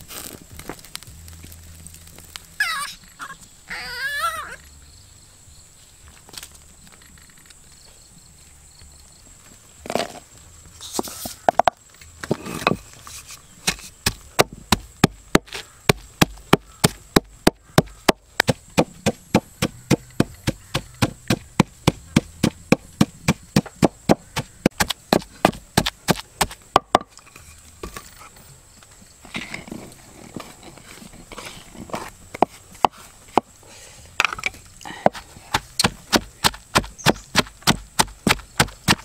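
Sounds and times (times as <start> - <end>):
wooden pestle pounding in mortar: 13.7 - 27.1, 35.1 - 39.0.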